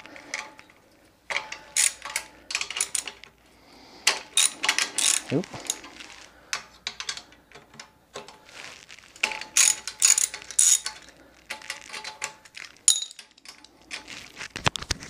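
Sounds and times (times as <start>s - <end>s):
hand ratchet clicking: 1.3s - 3.3s, 4.0s - 5.9s, 9.2s - 12.6s.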